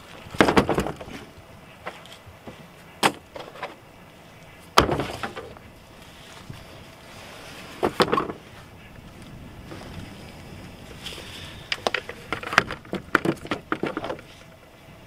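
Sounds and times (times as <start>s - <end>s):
tools clattering in truck bed: 0.3s - 2.1s, 3.0s - 3.8s, 4.8s - 5.6s, 7.8s - 8.4s, 11.8s - 14.3s.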